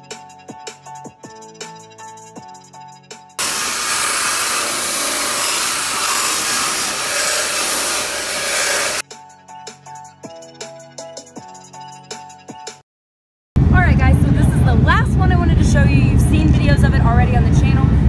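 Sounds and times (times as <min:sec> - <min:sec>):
rotary polisher whirring: 0:03.4 - 0:09.0
background music: 0:09.0 - 0:12.8.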